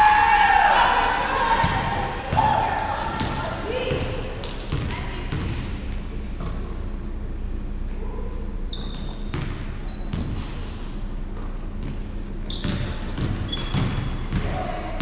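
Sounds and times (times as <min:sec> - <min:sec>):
steady low hum: 0:00.0 - 0:15.0
sneaker squeaks: 0:01.6 - 0:07.4, 0:08.6 - 0:15.0
basketball bouncing on hardwood: 0:04.7 - 0:05.6.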